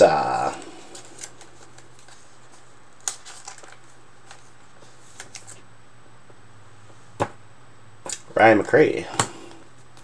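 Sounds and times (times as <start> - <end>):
low steady hum: 0.0 - 10.0
plastic sleeve rustling: 0.5 - 5.6.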